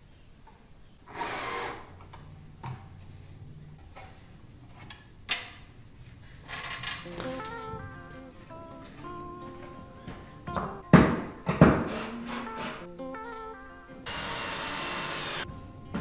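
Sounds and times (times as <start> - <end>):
cordless drill whirring: 1.1 - 1.9, 14.1 - 15.5.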